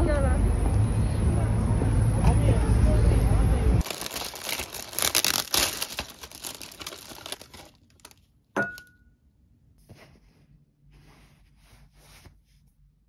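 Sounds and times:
plastic bag crinkling: 3.8 - 8.3
ceramic plate clink: 8.6 - 9.0.

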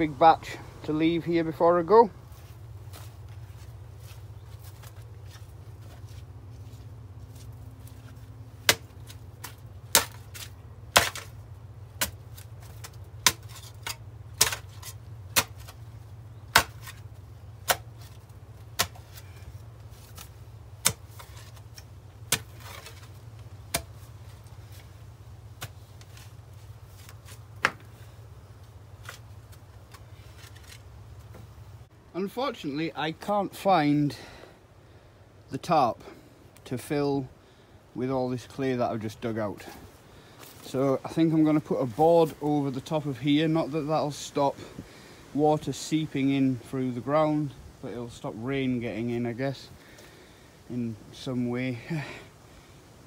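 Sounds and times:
steady low rumble: 0.0 - 33.1
spade chopping into wet soil: 8.6 - 15.8, 16.4 - 17.0, 17.6 - 19.2, 20.1 - 24.1, 25.6 - 26.1.

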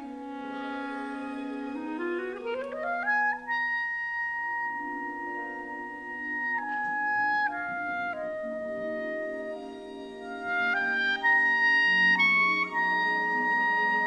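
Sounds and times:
solo clarinet: 0.0 - 14.0
orchestral strings sustaining: 7.7 - 14.0.

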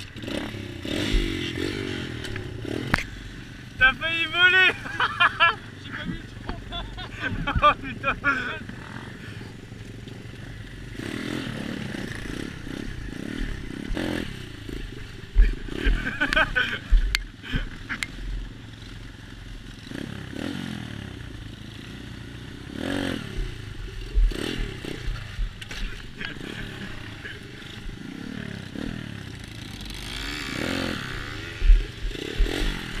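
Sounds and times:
motorbike engine revving: 0.0 - 33.0
bike rattles and knocks: 11.9 - 18.5, 23.3 - 28.2, 28.8 - 33.0.

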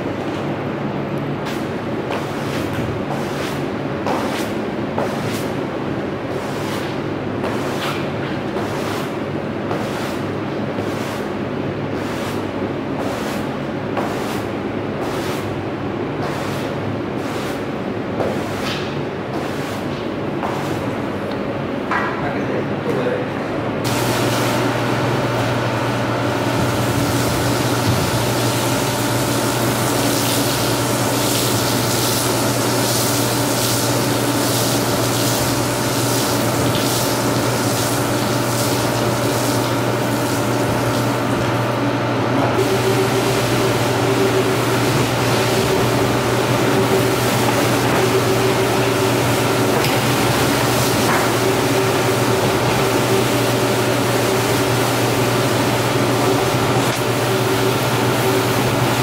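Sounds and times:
machinery hum: 0.0 - 59.0
rotary floor scrubber: 1.4 - 21.0, 23.8 - 59.0
second motor tone: 42.6 - 49.4.

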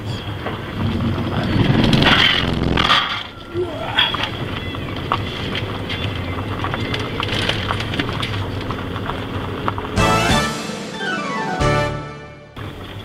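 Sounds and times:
tyres rumbling on gravel road: 0.0 - 10.1
stones crunching under tyres: 4.1 - 10.0.

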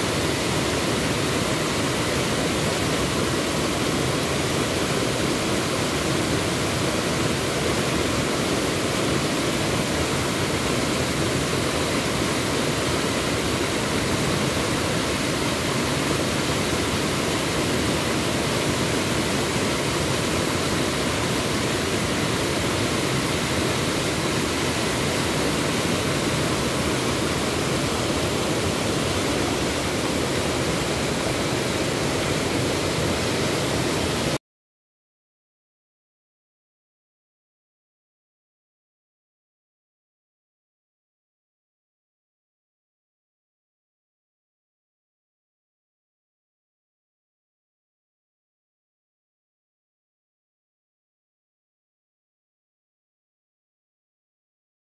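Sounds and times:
water rushing over waterfall: 0.0 - 34.4.

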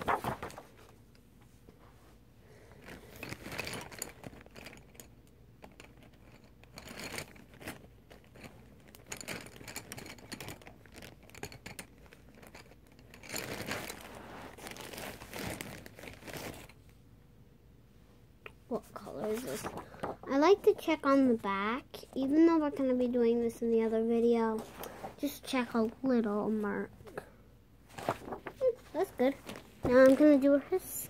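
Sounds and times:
paper rustling and crinkling: 0.0 - 1.0, 12.0 - 16.8, 19.1 - 20.4, 27.9 - 31.0.

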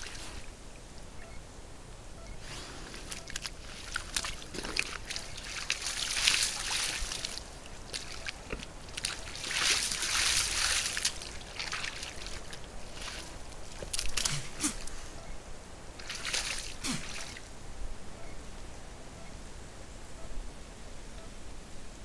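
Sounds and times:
mud sloshing and splashing: 2.9 - 14.9, 16.0 - 17.5.

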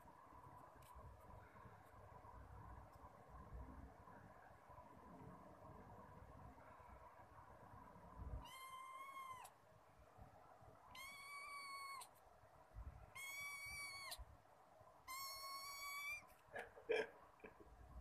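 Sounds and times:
kitten meowing: 8.4 - 9.6, 10.9 - 12.2, 13.1 - 14.2, 15.0 - 16.3.

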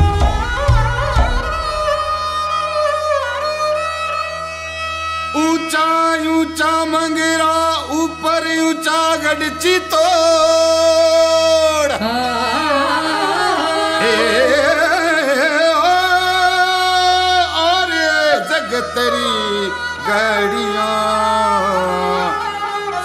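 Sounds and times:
instrumental accompaniment: 0.0 - 23.0
slow song with ornamented vocals: 7.2 - 23.0.

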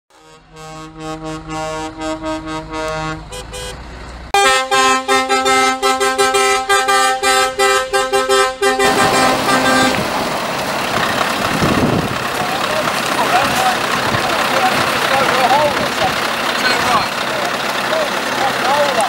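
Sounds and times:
truck air horns blasting: 0.1 - 10.4
truck engine and exhaust: 0.1 - 19.0.

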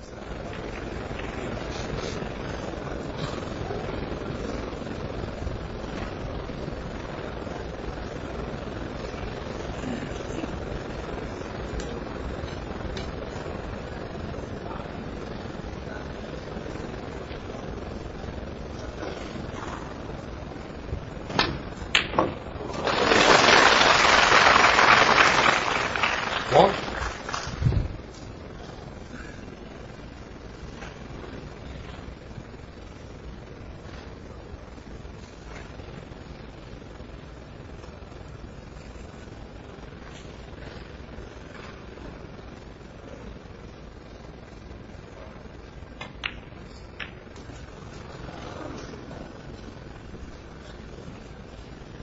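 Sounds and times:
arena background hum and hiss: 0.0 - 52.0
audience applause: 22.0 - 27.7
snooker balls clicking: 46.0 - 47.7.

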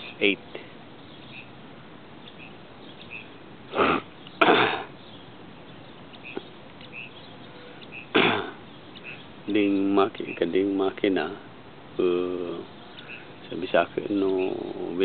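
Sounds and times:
faint steady hiss: 0.0 - 15.0
breaths close to microphone: 12.9 - 13.4.

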